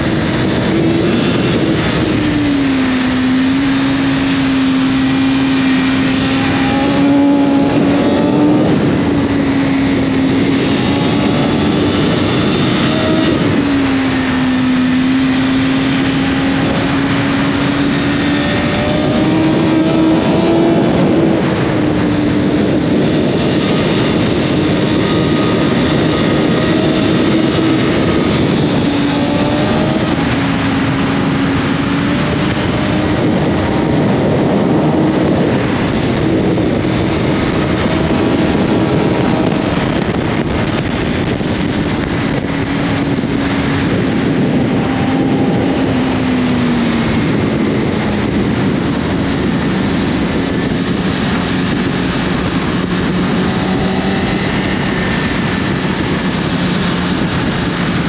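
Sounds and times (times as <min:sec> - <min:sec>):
motorcycle engine revving high: 0:00.0 - 0:58.0
wind rush: 0:00.0 - 0:58.0.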